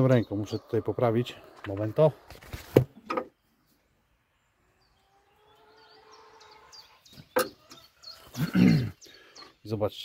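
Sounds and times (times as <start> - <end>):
faint bird chirps: 3.3 - 10.0.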